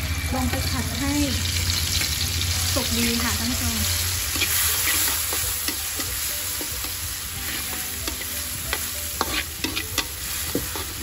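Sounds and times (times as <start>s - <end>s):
paste sizzling in hot lard: 0.0s - 11.0s
metal spatula scraping a wok: 2.8s - 11.0s.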